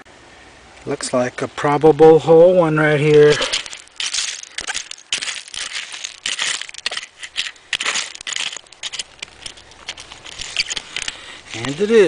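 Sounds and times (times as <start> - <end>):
digging tool scraping gritty dirt: 3.0 - 12.0.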